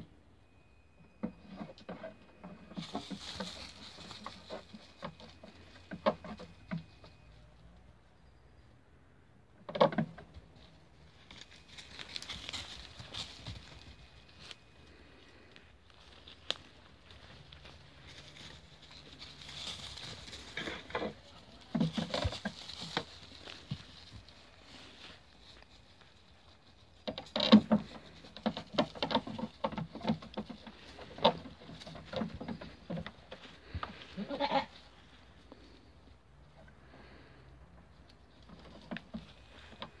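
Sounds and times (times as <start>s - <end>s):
hooves scuffling on dry leaves: 2.4s - 5.8s, 10.6s - 37.4s
sheep bleating: 34.2s - 34.8s.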